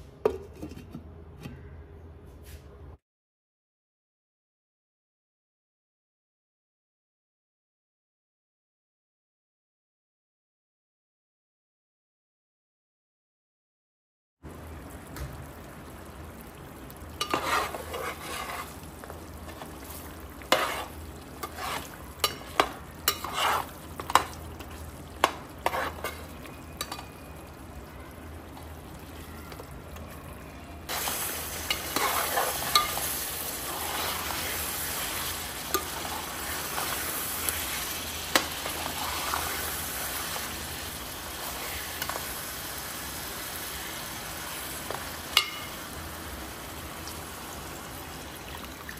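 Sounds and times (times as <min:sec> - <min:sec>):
oil and masala sizzling: 0:14.4 - 0:48.9
metal spoon clinking and scraping pot: 0:17.2 - 0:18.8, 0:20.4 - 0:27.2, 0:30.9 - 0:37.2, 0:45.4 - 0:45.8.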